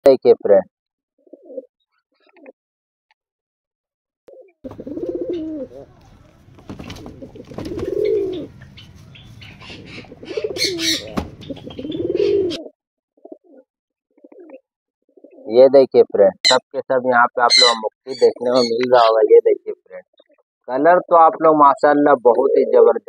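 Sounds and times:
pigeons cooing: 0:01.2 - 0:02.5, 0:04.3 - 0:15.6, 0:17.5 - 0:19.2, 0:22.3 - 0:23.0.

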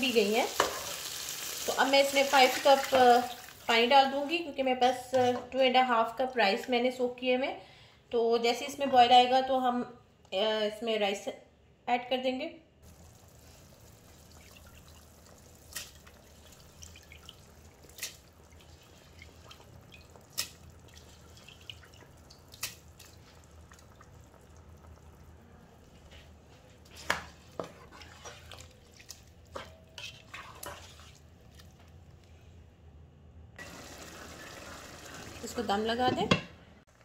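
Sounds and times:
pot simmering: 0:12.8 - 0:32.3, 0:33.6 - 0:35.9
spatula stirring in pot: 0:14.4 - 0:24.4, 0:25.9 - 0:31.8.

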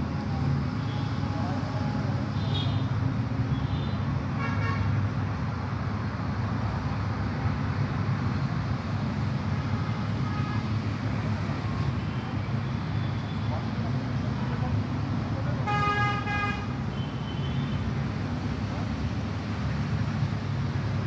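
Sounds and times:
road traffic rumble: 0:00.0 - 0:21.0
vehicle horn toot: 0:15.7 - 0:17.7.

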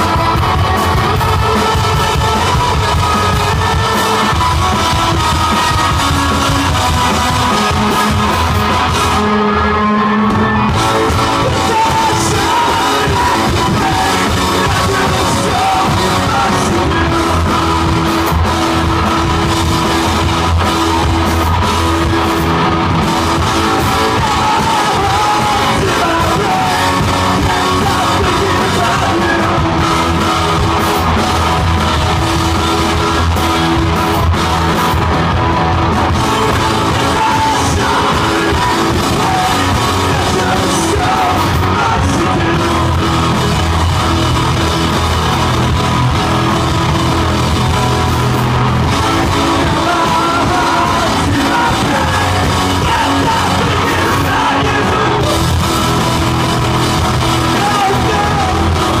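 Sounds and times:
man singing: 0:00.0 - 0:20.3, 0:23.2 - 0:30.6, 0:36.1 - 0:44.3, 0:48.9 - 0:56.2, 0:56.8 - 0:59.0
bass guitar: 0:00.0 - 0:59.0
drum kit: 0:00.0 - 0:59.0
electric guitars: 0:00.0 - 0:59.0.

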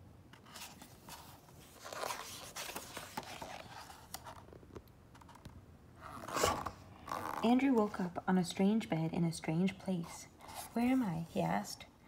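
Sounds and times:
book page paper rustling: 0:00.4 - 0:05.5, 0:10.0 - 0:11.7.

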